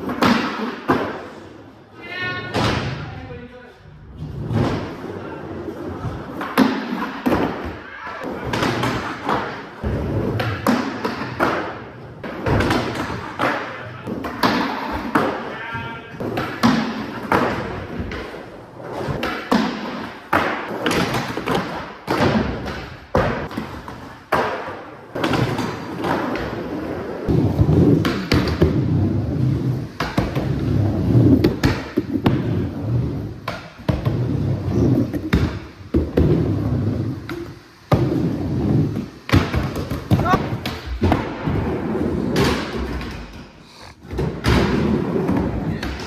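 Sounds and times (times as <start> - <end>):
skateboard sliding on box: 4.1 - 15.5, 16.2 - 46.0
wheels slapping on concrete: 5.9 - 46.0
skateboard wheels rolling rumble: 24.9 - 46.0.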